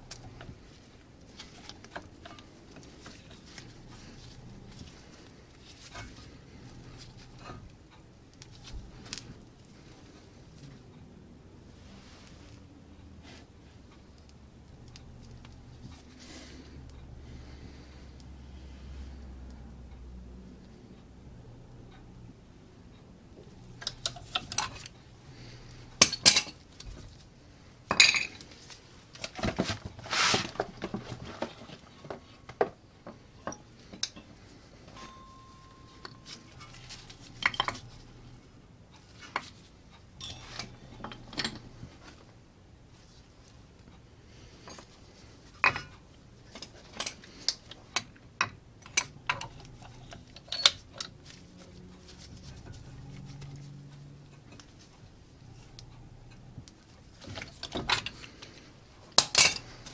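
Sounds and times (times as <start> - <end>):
metal clinks and knocks: 23.6 - 25.0, 25.7 - 27.0, 27.9 - 28.4, 33.1 - 38.4, 39.1 - 42.0, 45.6 - 54.9, 55.5 - 59.9
metal scraping rubs: 30.0 - 31.7.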